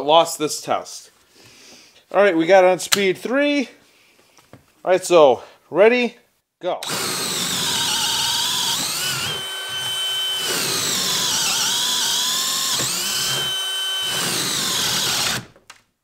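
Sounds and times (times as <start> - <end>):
drill motor whine: 6.8 - 15.5.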